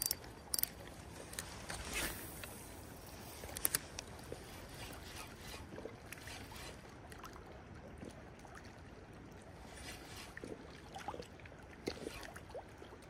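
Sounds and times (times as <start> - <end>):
river water flowing and lapping: 0.0 - 13.0.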